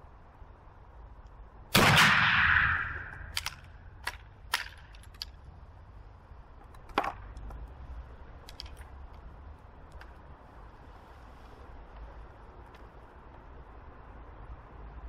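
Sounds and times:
rifle shot echo: 1.7s - 3.6s
rifle breech clicks and knocks: 3.3s - 5.4s.

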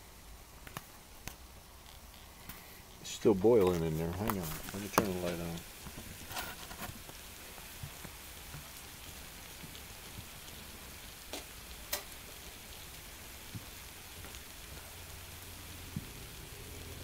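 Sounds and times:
water boiling with bubbling hiss: 0.0s - 17.0s
sharp pops: 11.2s - 12.2s.

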